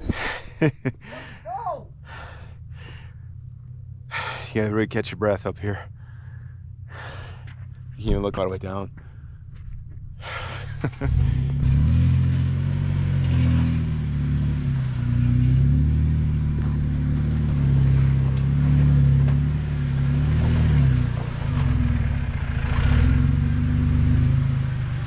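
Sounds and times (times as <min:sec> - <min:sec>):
off-road vehicle engine: 0:00.0 - 0:25.0.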